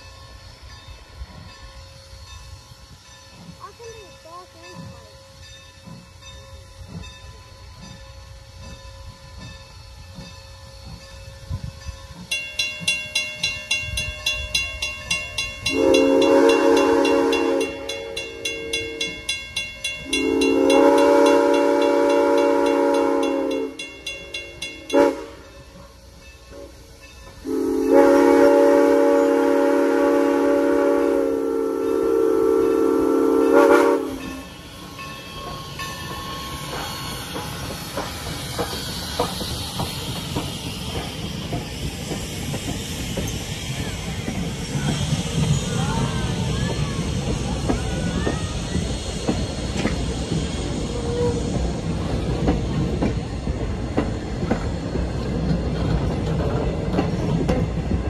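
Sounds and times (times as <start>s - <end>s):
railroad crossing bell ringing: 0.0s - 48.9s
hiss of steam: 0.0s - 58.0s
steam locomotive whistle: 13.1s - 37.5s, 44.8s - 51.7s.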